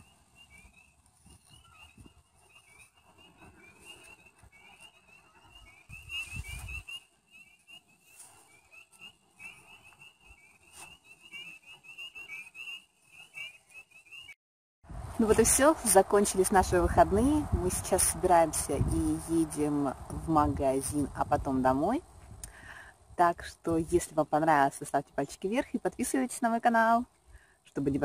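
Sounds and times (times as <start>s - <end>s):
high chirping calls: 0.0s - 14.4s.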